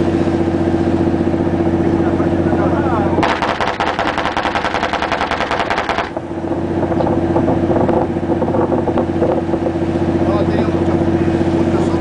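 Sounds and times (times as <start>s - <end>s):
low machinery hum: 0.0s - 12.0s
anti-aircraft gun firing burst: 3.2s - 6.2s.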